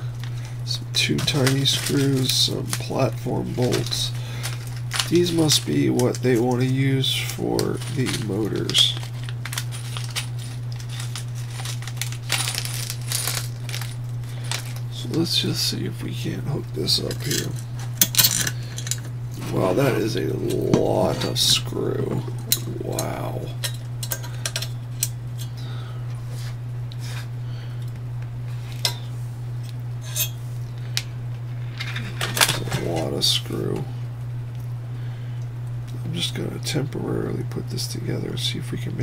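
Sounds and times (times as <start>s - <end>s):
steady low hum: 0.0s - 39.0s
hardware rustling: 0.2s - 25.6s, 31.6s - 33.7s
small metal screws clinking: 9.5s - 14.8s.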